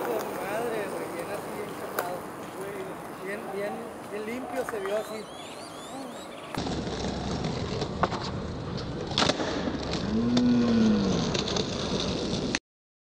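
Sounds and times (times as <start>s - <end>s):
skateboard clacks: 0.0s - 3.2s
skateboard wheels rolling on concrete: 0.0s - 12.6s.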